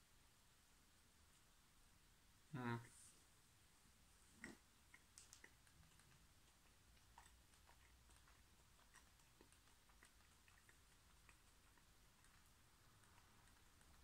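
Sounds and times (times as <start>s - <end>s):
faint chewing: 4.2s - 14.0s.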